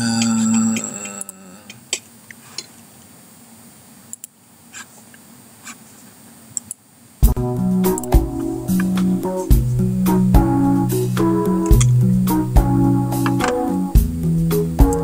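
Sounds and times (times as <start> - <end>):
keyboard music: 7.3 - 15.0.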